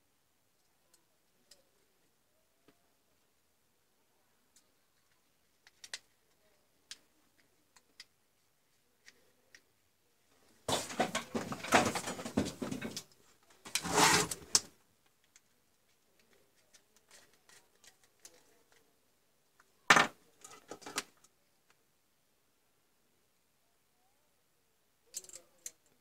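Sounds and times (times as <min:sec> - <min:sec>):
rustling and scraping on plastic: 0:10.6 - 0:14.7.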